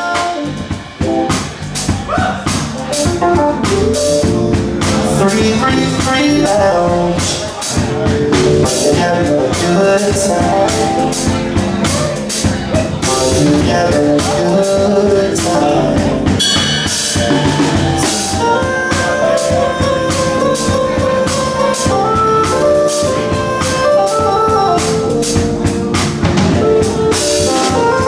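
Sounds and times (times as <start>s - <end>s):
bass notes: 0.0s - 28.0s
drum kit beat: 0.0s - 28.0s
keyboard notes: 0.0s - 28.0s.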